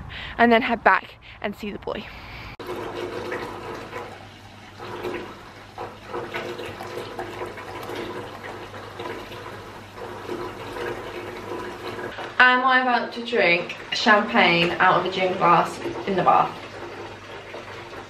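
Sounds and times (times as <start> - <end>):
bath tap running: 2.6 - 18.0.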